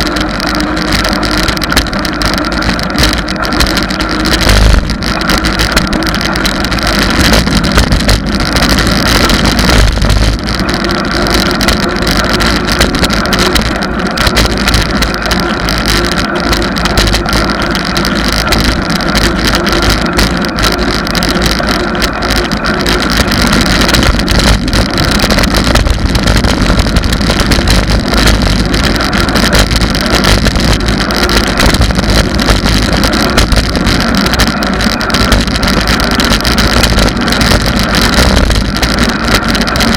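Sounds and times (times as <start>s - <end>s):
road rumble: 0.0s - 39.9s
wind rush: 0.0s - 39.9s.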